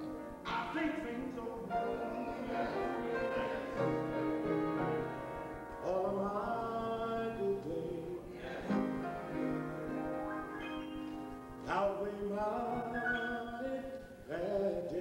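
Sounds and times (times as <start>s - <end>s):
instrumental accompaniment: 0.0s - 6.2s, 8.5s - 13.8s
man singing gospel song: 0.4s - 4.0s, 5.8s - 9.6s, 11.6s - 15.0s.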